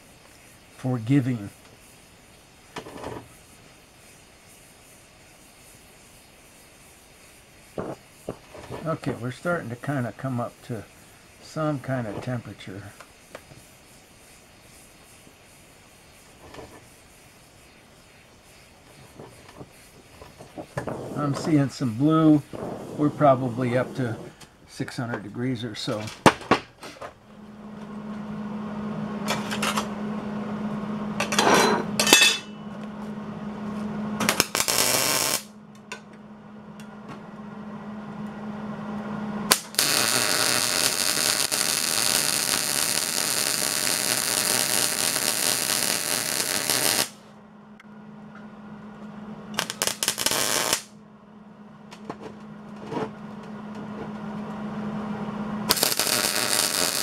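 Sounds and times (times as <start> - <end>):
welding arc crackling hiss: 0.0 - 28.0, 34.2 - 36.0, 39.5 - 47.4, 49.5 - 51.0, 55.6 - 57.0
steady low hum: 0.0 - 57.0.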